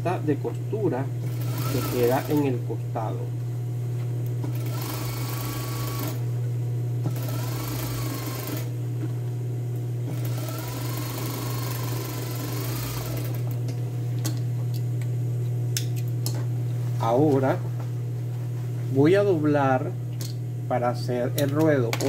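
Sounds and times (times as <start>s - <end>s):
steady motor hum: 0.0s - 22.0s
sewing machine stitching: 1.3s - 2.5s, 4.5s - 6.2s, 7.1s - 8.7s, 10.1s - 13.5s.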